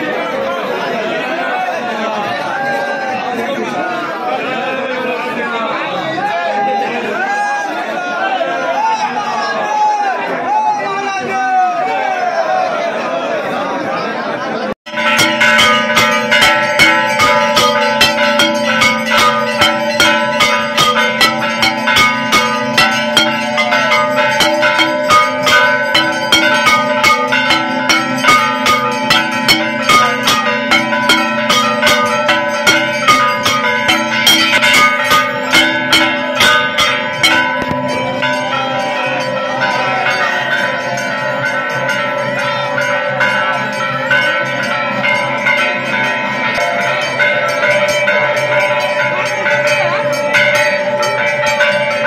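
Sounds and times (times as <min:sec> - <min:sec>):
temple bells ringing: 0:14.9 - 0:52.0.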